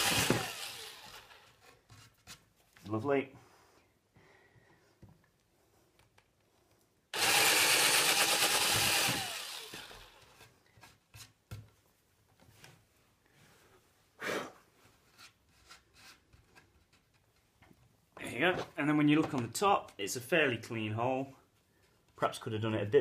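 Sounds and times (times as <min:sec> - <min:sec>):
cordless drill running: 0:00.0 - 0:01.6, 0:07.2 - 0:10.4.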